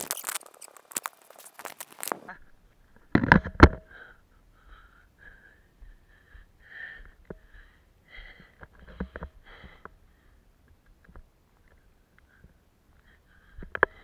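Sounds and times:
breathing close to microphone: 3.7 - 10.5, 12.2 - 14.0.

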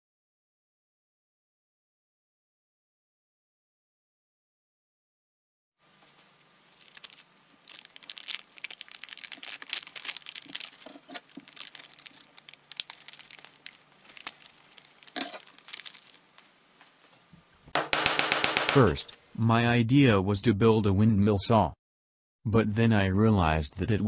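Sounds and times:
plastic tarpaulin crinkling: 6.7 - 16.2
scissors snipping plastic: 6.8 - 16.2.

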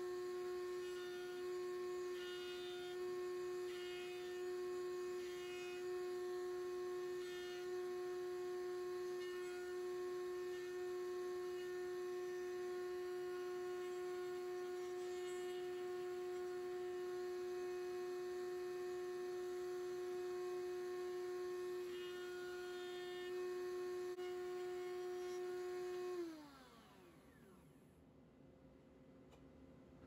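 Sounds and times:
router bit cutting wood: 0.0 - 27.9
router high whine: 0.0 - 28.0.

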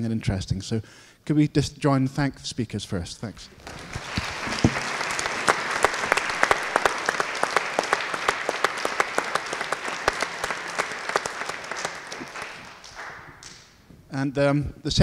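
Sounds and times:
audience applauding: 3.5 - 13.8.

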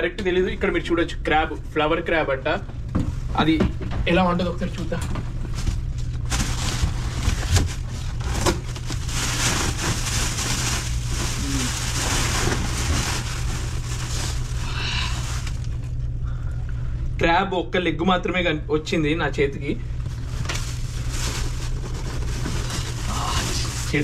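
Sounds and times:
low hum: 0.0 - 24.0
cardboard and plastic rustling: 5.0 - 16.0, 20.0 - 24.0.

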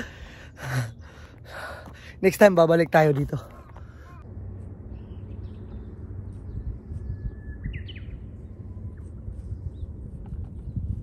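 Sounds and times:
bird chirping: 3.6 - 11.0
wind rumble on microphone: 4.6 - 11.0.

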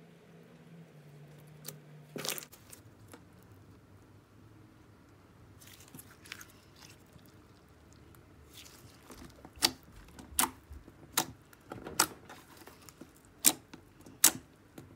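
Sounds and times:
slime squishing and crackling: 1.6 - 3.5, 5.6 - 14.9.

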